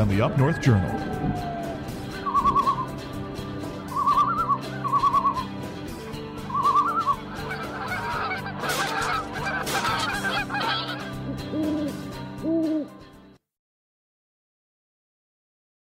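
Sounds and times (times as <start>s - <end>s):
warbling bird calls: 0.0s - 3.0s, 3.8s - 5.6s, 6.4s - 12.9s
chattering animal calls: 6.5s - 12.0s
goose honks: 7.3s - 11.2s.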